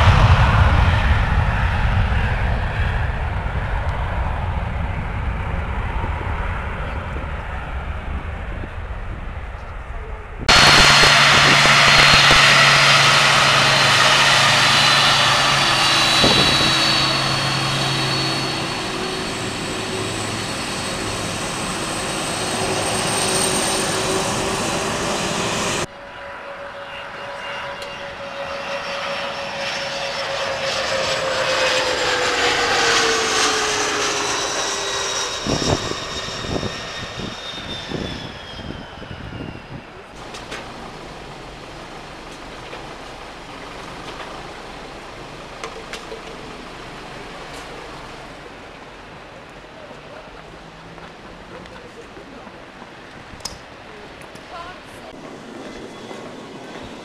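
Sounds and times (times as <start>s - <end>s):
jet engines rushing and whining: 0.0s - 57.0s.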